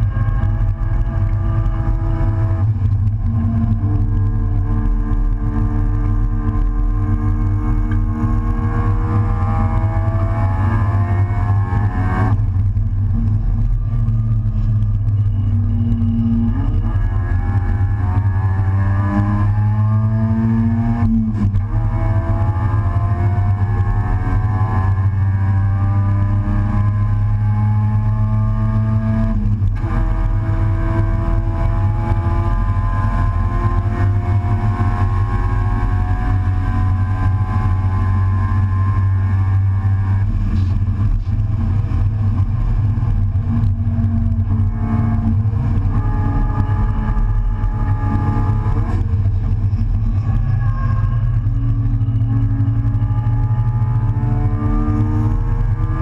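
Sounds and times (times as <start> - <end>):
gear change: 0.0 - 56.0
race car engine accelerating: 0.0 - 56.0.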